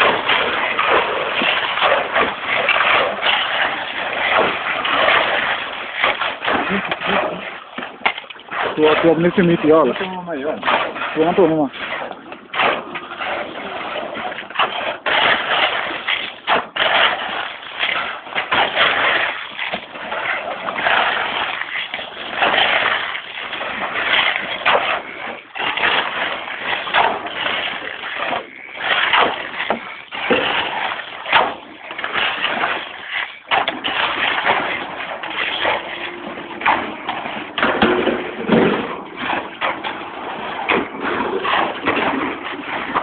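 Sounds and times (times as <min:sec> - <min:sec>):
scraping gritty material: 0:00.0 - 0:43.0.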